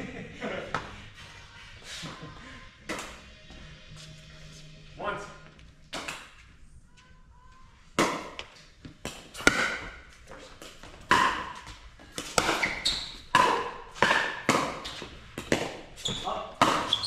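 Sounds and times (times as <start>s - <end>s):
paddles hitting ball: 5.9s - 6.4s, 8.0s - 17.0s.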